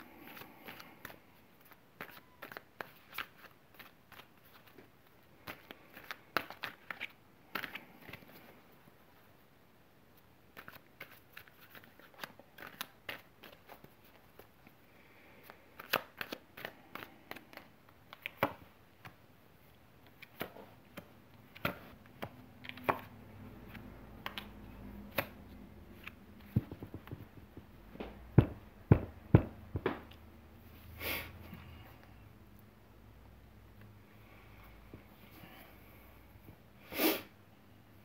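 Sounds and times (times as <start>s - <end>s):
cards shuffling clicks and taps: 0.2s - 8.5s, 10.5s - 14.8s, 15.4s - 19.2s, 20.0s - 30.2s.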